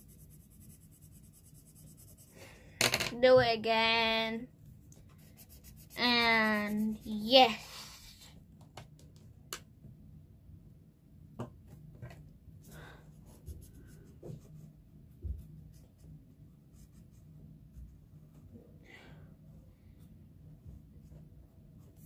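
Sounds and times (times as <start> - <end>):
pencil scratching on paper: 0.0 - 2.3, 5.0 - 8.2.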